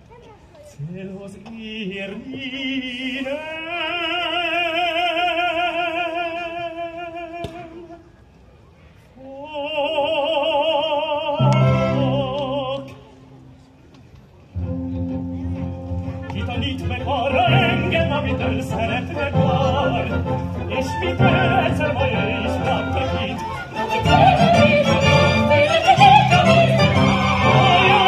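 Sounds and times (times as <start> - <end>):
orchestral chords: 14.6 - 28.0
operatic singing voice: 16.4 - 28.0.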